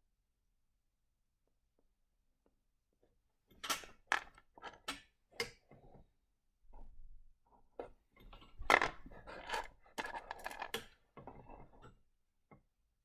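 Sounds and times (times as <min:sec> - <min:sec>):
stones clicking and scraping: 0:08.7 - 0:10.8.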